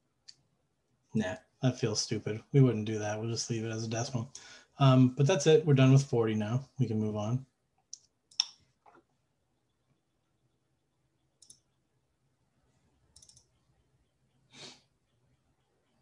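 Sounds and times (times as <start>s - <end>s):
soft clicks: 7.8s - 9.1s, 11.4s - 11.8s, 13.1s - 13.8s.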